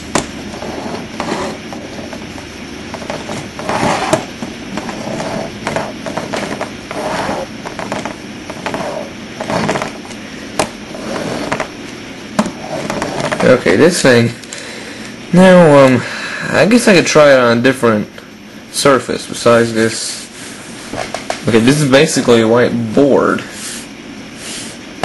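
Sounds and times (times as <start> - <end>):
plastic toy wheels scraping and rattling: 0.6 - 2.0, 3.0 - 10.0, 12.6 - 13.7.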